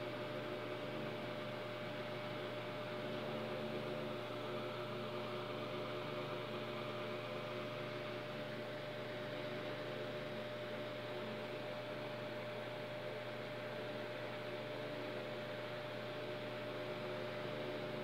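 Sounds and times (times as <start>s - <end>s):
background hum and hiss: 0.0s - 18.0s.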